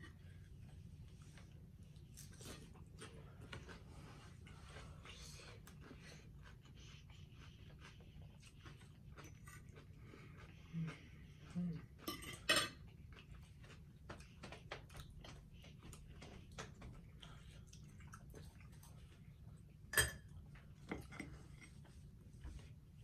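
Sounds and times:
chewing and mouth smacking: 0:00.7 - 0:22.8
forks clinking on plate: 0:12.0 - 0:12.8.

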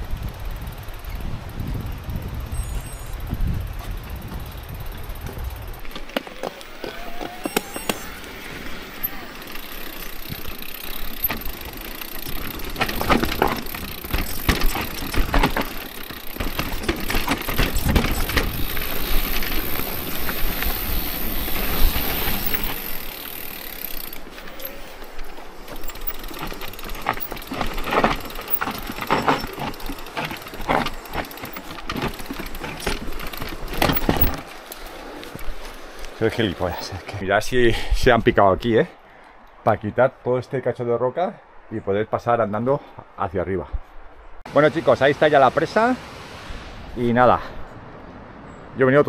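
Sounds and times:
bike rattling over bumps: 0:00.0 - 0:37.2
tyres crunching on gravel: 0:03.1 - 0:37.2.

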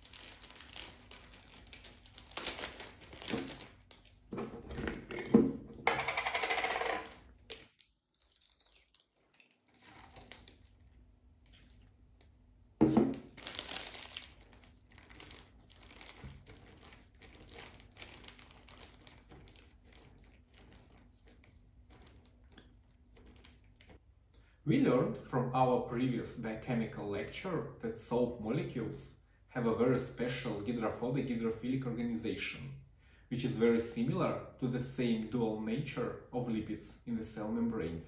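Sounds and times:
plastic bag crinkling: 0:00.0 - 0:04.4, 0:13.0 - 0:24.0.

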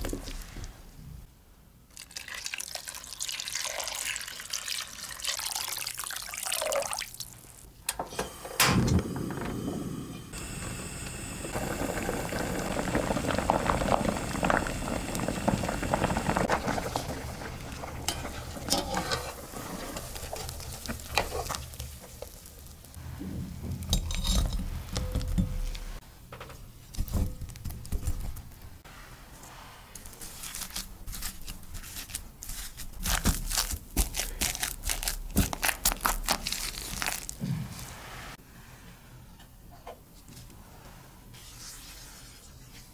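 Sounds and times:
water boiling in pot: 0:01.9 - 0:07.7, 0:10.3 - 0:23.0
masher squashing potatoes: 0:32.2 - 0:37.4.

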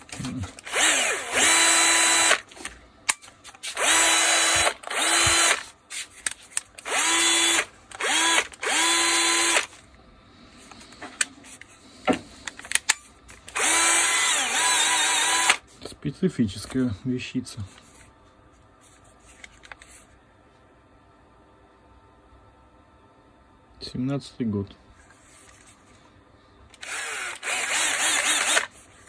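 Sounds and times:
cordless drill whining: 0:00.6 - 0:02.5, 0:03.7 - 0:05.6, 0:06.8 - 0:09.8, 0:13.5 - 0:15.6, 0:26.7 - 0:28.7.

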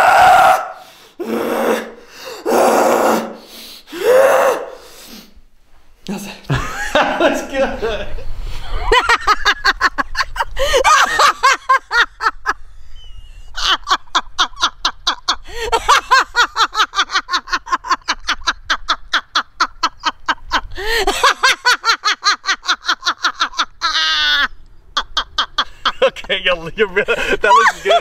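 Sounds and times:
woman laughing hard: 0:08.6 - 0:12.6, 0:13.4 - 0:26.2, 0:27.1 - 0:28.0.

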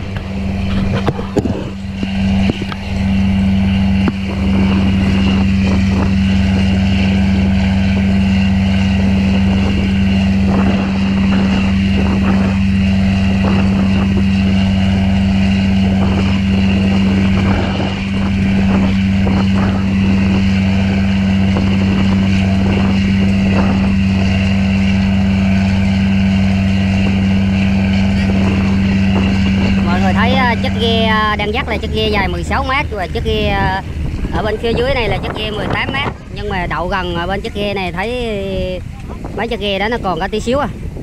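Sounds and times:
boat engine droning: 0:00.0 - 0:41.0.

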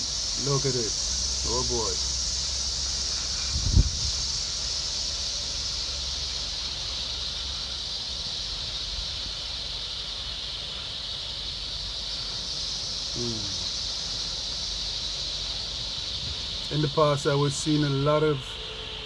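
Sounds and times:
insect chorus hiss: 0:00.0 - 0:19.0
wind rumble on microphone: 0:03.3 - 0:04.5, 0:15.8 - 0:16.7.

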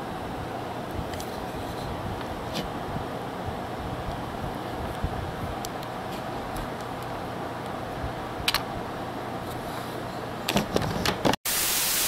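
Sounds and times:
loud even static: 0:11.2 - 0:12.0
steady hiss: 0:11.5 - 0:12.0.

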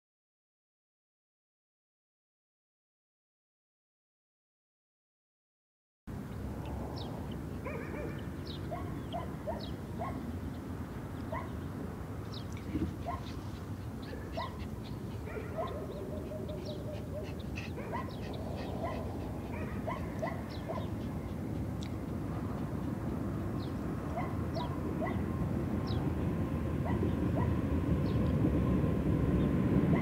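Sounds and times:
distant freight train rumble: 0:12.9 - 0:30.0.

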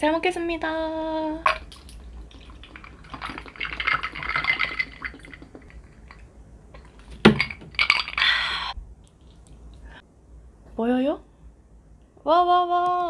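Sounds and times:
liquid pouring into a glass: 0:01.5 - 0:06.2
person drinking: 0:01.5 - 0:06.2.

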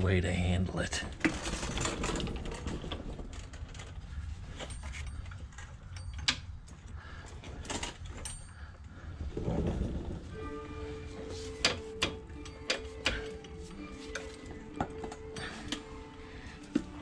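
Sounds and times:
low steady hum: 0:00.0 - 0:17.0
tools clicking and knocking: 0:04.6 - 0:08.5, 0:11.5 - 0:15.9.

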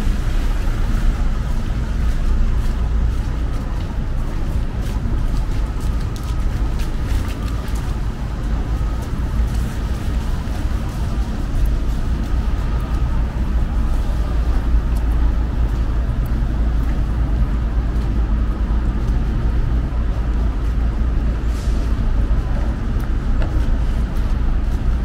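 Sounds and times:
road traffic rumble: 0:00.0 - 0:25.0.

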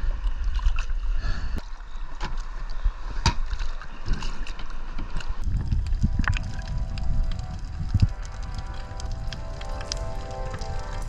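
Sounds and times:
wind buffeting microphone: 0:05.4 - 0:11.0.

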